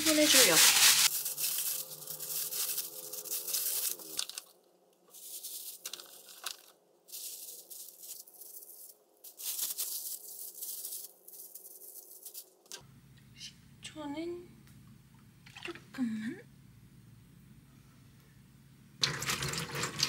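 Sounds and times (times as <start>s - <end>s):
plastic packaging crinkling and tearing: 0.0s - 12.5s.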